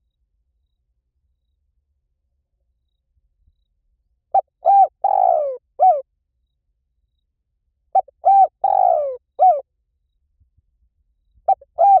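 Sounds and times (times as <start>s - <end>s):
dove cooing: 4.4s - 6.0s, 8.0s - 9.6s, 11.5s - 12.0s.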